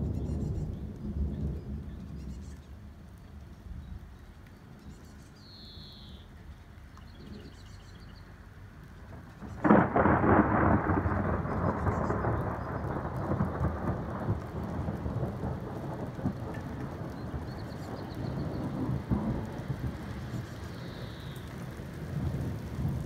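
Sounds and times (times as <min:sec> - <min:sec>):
thunder crack and rumble: 0:00.0 - 0:03.0, 0:09.0 - 0:23.0.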